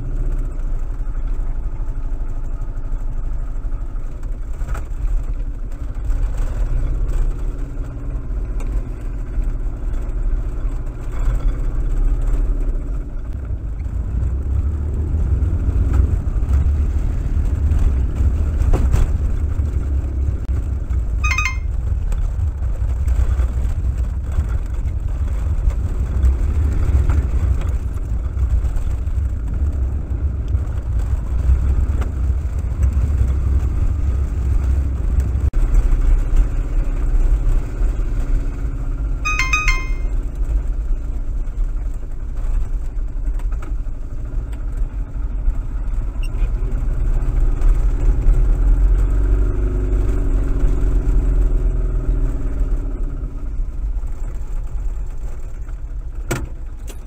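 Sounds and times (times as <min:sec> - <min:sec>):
utility vehicle engine rumbling: 0:00.0 - 0:57.0.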